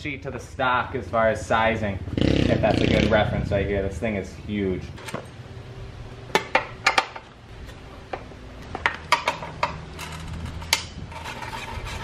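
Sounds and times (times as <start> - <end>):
wrench clinking on metal bolts: 8.8 - 11.0.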